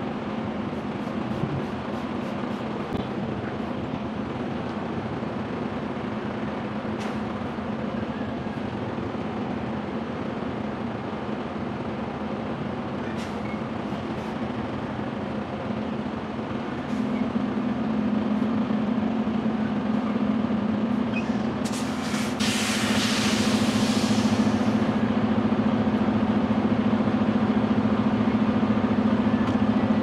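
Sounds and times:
diesel engine running: 0:00.0 - 0:30.0
burst of hiss: 0:21.7 - 0:24.8.

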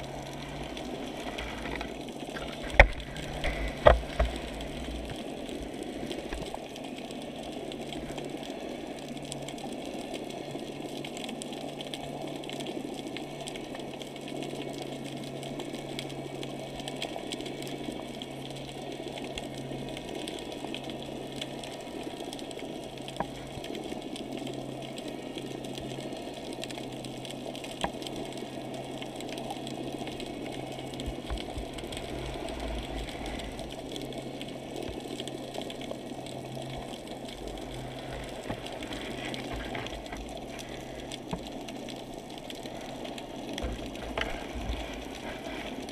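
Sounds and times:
muffled underwater noise: 0:00.0 - 0:09.3, 0:27.9 - 0:45.9
low steady hum: 0:00.0 - 0:45.9.

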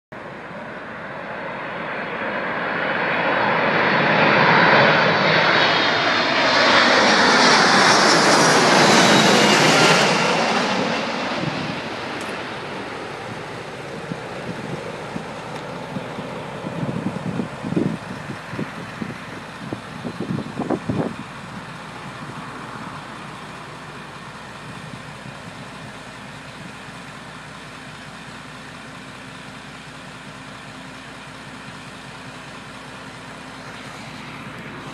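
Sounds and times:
distant jet roar: 0:00.2 - 0:29.4, 0:30.8 - 0:34.9
wind buffeting microphone: 0:11.3 - 0:22.6.

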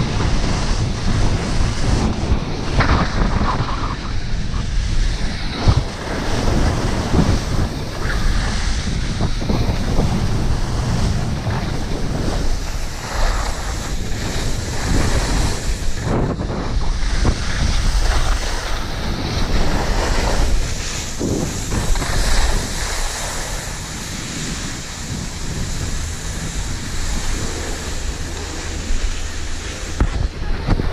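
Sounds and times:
skis carving on snow: 0:00.0 - 0:30.9
wind rushing over microphone: 0:00.0 - 0:30.9.

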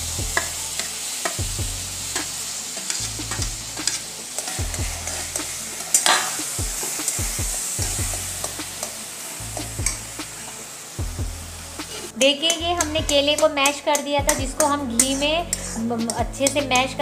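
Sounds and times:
banana sizzling in hot ghee: 0:00.0 - 0:17.0
steel spatula scraping a pan: 0:02.1 - 0:10.0, 0:11.9 - 0:17.0.

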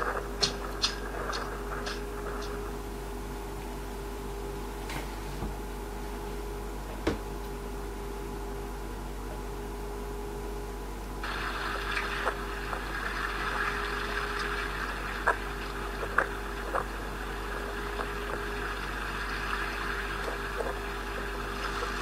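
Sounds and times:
low steady hum: 0:00.0 - 0:22.0
water lapping and sloshing: 0:11.2 - 0:22.0.

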